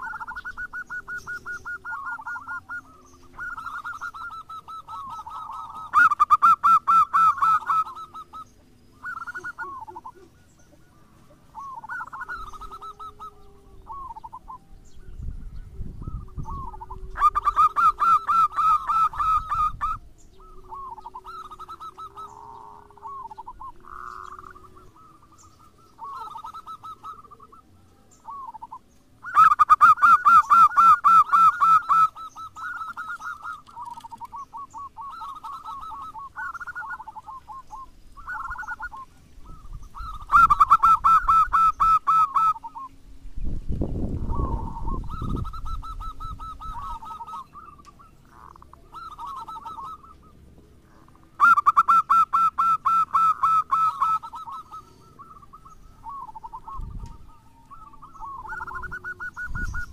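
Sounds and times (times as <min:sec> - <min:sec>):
doves cooing rapidly: 0:00.0 - 0:43.0, 0:43.8 - 0:59.9
soft low cooing: 0:09.7 - 0:17.8.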